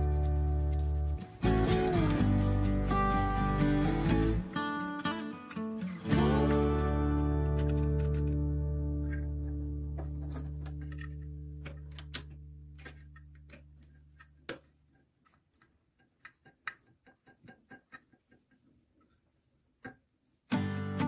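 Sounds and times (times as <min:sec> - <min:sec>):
background music: 0:00.0 - 0:12.2
plastic fittings clicking: 0:07.1 - 0:18.6.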